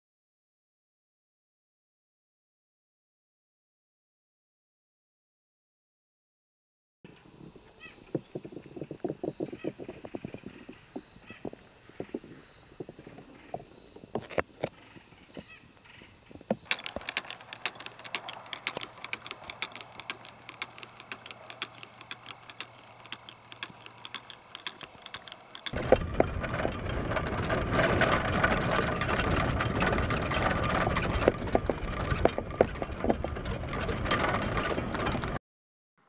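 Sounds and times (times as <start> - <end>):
golf cart rumbling with rattles: 7.1 - 35.4
golf clubs clinking in bag: 16.6 - 35.3.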